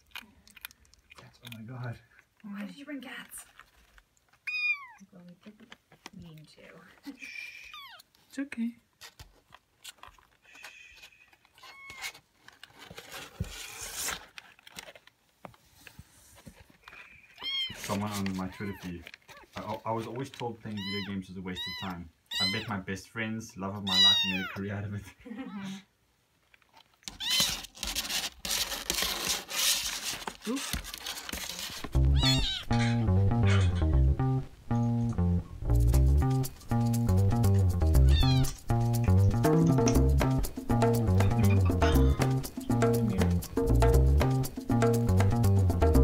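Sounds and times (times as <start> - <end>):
kitten mewing: 7.6 - 8.1, 20.8 - 22.7, 23.9 - 24.6, 32.1 - 34.0, 38.0 - 38.7, 41.3 - 42.5
paper and towel rustling: 11.2 - 21.2, 27.2 - 32.6
background music: 31.9 - 46.0.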